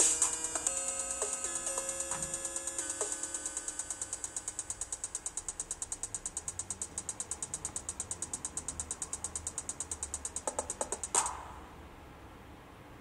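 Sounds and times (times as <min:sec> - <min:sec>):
rapid mechanical clicking: 0:00.0 - 0:11.4.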